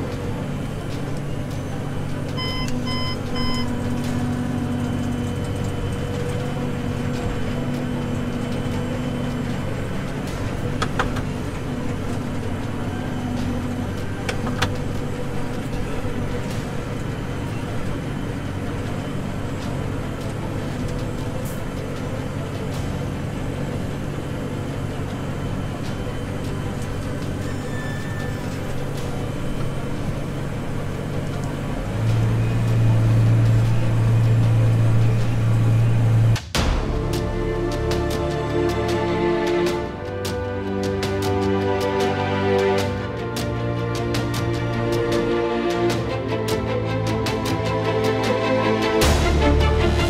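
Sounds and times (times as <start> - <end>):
tractor engine running: 0.0 - 50.0
short electronic beeps: 2.4 - 3.8.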